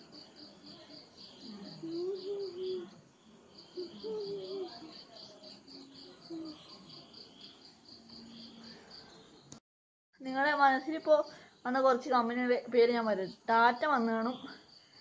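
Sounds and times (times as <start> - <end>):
insect chirping: 0.0 - 9.6, 10.3 - 15.0.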